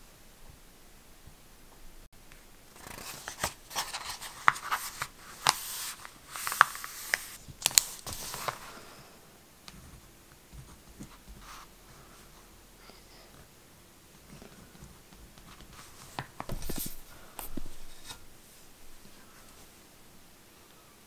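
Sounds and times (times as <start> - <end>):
paper pages rustling: 2.8 - 8.8, 14.3 - 18.2.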